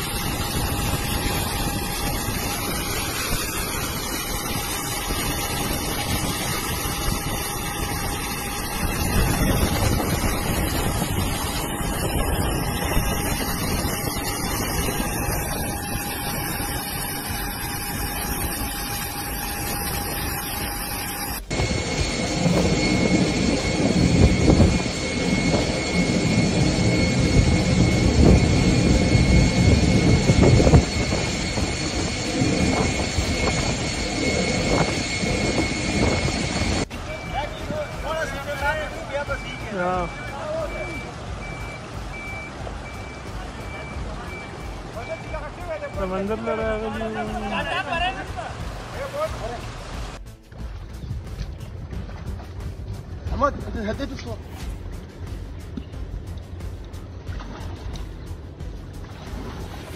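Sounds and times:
machinery whine: 0.0 - 48.8
storm wind: 0.0 - 50.2
heavy rain rushing: 36.8 - 50.2.

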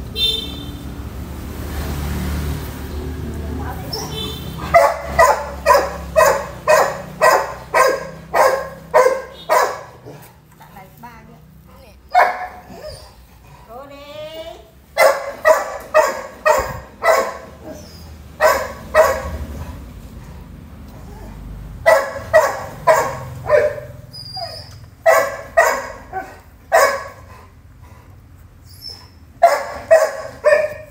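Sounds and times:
dog barking: 3.9 - 10.3, 12.1 - 13.1, 15.0 - 19.7, 21.8 - 27.3, 29.4 - 30.9.

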